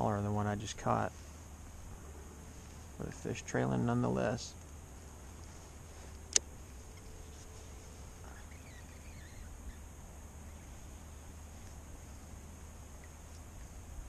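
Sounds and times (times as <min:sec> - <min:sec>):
faint wavering chirps: 0:05.9 - 0:14.0.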